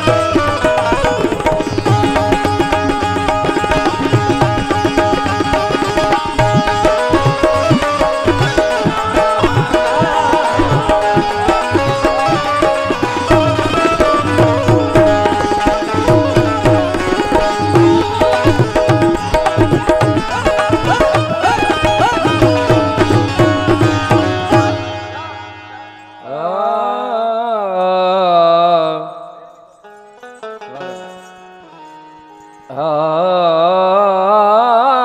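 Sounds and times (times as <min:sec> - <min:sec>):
hand drum rhythm: 0:00.0 - 0:25.2
harmonium melody: 0:00.0 - 0:34.8.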